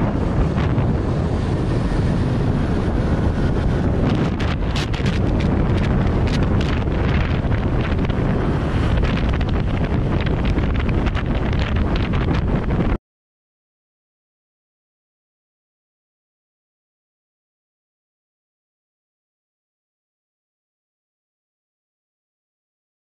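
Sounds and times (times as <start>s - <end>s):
gusty crackles: 0.0s - 13.0s
wind buffeting microphone: 0.0s - 13.0s.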